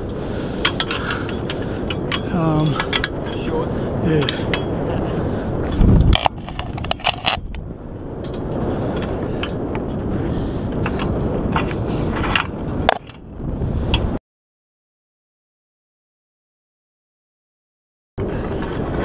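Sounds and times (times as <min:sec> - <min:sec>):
wind buffeting microphone: 0:00.0 - 0:14.2, 0:18.2 - 0:19.0
metallic clinks and scrapes: 0:05.7 - 0:07.6.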